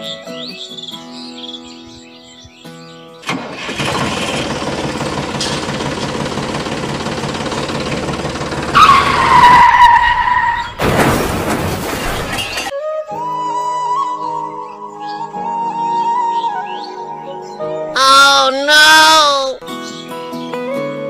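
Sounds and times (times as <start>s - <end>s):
small electric motor rattling: 3.7s - 8.8s.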